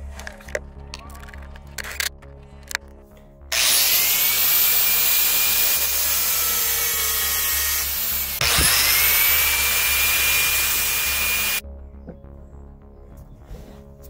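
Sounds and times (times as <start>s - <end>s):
angle grinder cutting metal rod: 3.5s - 11.6s.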